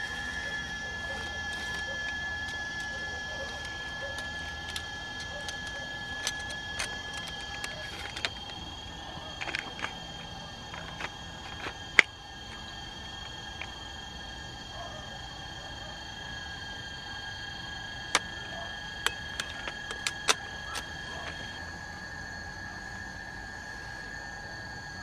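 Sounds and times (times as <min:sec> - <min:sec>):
insects chirring: 0:00.0 - 0:25.0
sharp clicks: 0:18.1 - 0:21.5.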